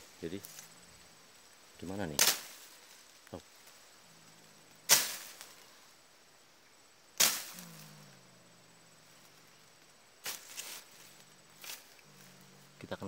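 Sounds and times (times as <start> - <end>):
machete slashing through ferns: 2.2 - 2.7, 4.9 - 5.5, 7.2 - 7.6, 10.2 - 10.8.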